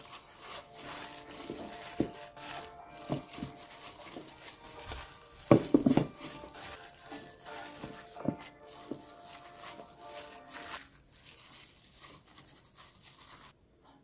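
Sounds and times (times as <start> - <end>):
plastic glove crinkling: 0.0 - 13.6
soft background music: 0.0 - 14.0
vegetables dropped into plastic container: 3.0 - 9.6.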